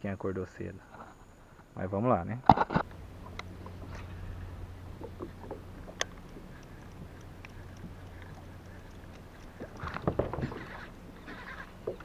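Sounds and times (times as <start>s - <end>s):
kayak gear knocking and clicking: 2.5s - 12.0s.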